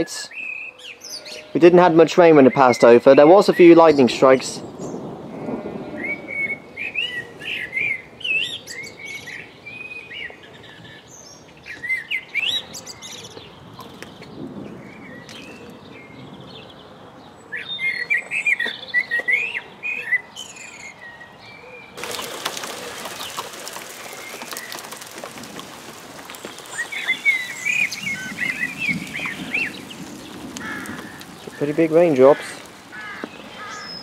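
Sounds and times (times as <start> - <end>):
songbird whistling song: 6.0 - 13.5, 17.5 - 22.0.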